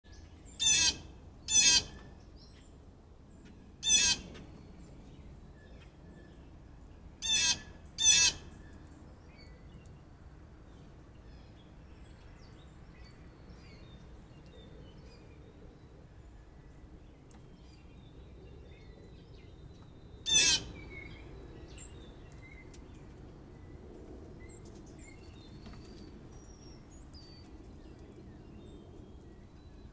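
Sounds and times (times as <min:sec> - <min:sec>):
harsh bird calls: 0:00.6 - 0:02.0, 0:07.2 - 0:08.6, 0:20.3 - 0:21.9.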